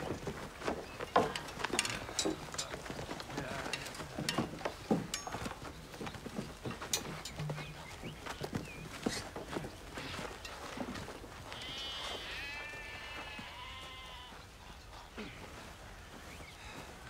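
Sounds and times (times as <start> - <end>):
footsteps: 0.0 - 17.0
knocks and clinks of shields: 1.0 - 7.8.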